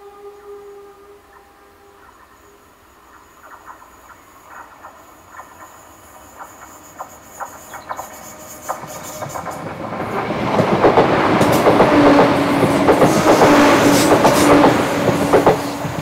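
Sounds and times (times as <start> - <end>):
train horn: 0.0 - 2.6, 11.6 - 16.0
train approaching: 0.0 - 16.0
wheels clicking on track: 3.5 - 16.0.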